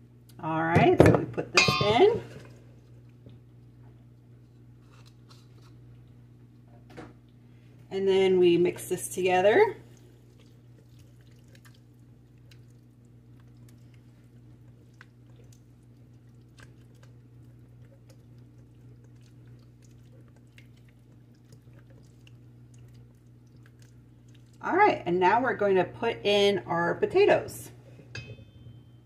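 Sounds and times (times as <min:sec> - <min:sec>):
steady low hum: 0:00.0 - 0:29.0
spatula stirring thick dressing: 0:10.2 - 0:24.6.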